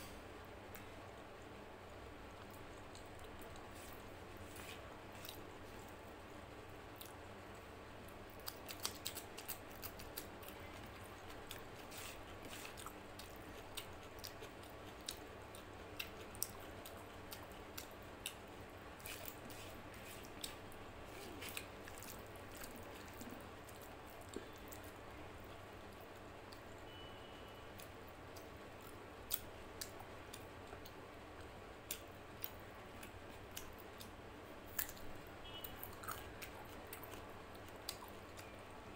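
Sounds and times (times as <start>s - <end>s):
faint steady hum: 0.0s - 38.9s
wet chewing and squishing: 8.3s - 18.4s, 19.0s - 25.0s, 34.7s - 38.6s.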